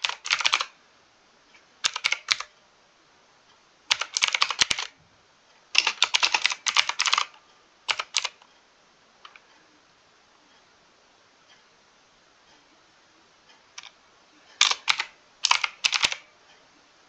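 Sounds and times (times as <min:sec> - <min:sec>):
mechanical keyboard typing: 0:00.0 - 0:00.8, 0:01.8 - 0:02.5, 0:03.9 - 0:05.0, 0:05.8 - 0:08.4, 0:14.6 - 0:16.3.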